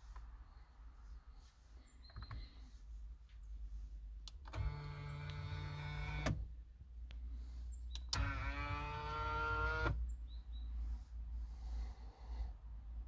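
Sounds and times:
electric motor whining: 8.2s - 10.0s.

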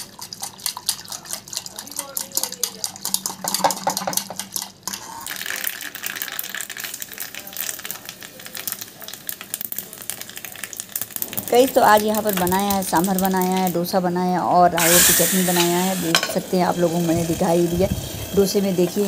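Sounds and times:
whisk clinking against pot: 0.0s - 5.0s
seeds sizzling in hot oil: 4.9s - 14.0s, 14.8s - 19.0s.

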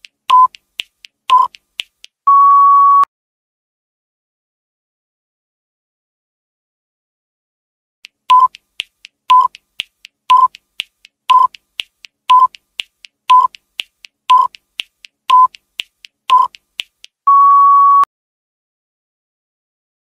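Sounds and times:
timer beeps: 0.3s - 0.6s, 1.3s - 1.6s, 2.3s - 3.1s, 8.3s - 8.6s, 9.3s - 9.6s, 10.3s - 10.6s, 11.3s - 11.6s, 12.3s - 12.6s, 13.3s - 13.6s, 14.3s - 14.6s, 15.3s - 15.6s, 16.3s - 16.6s, 17.3s - 18.1s
long beep: 2.3s - 3.1s, 17.3s - 18.1s.

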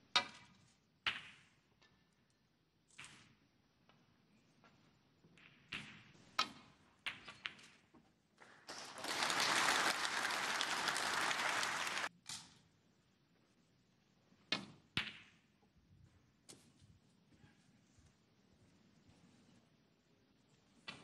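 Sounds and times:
audience applause: 8.7s - 12.1s.

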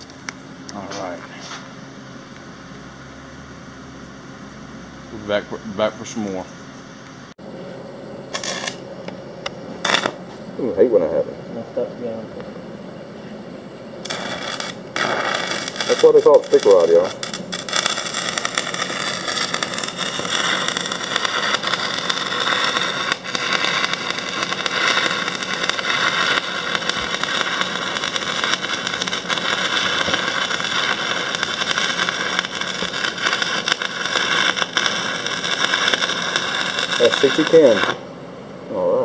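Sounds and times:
welding arc crackling hiss: 0.0s - 7.4s, 8.3s - 11.1s, 14.0s - 38.1s.

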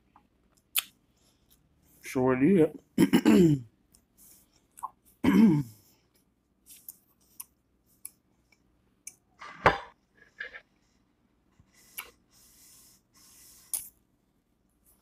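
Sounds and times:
woman clearing throat: 3.0s - 3.7s, 5.2s - 5.8s.

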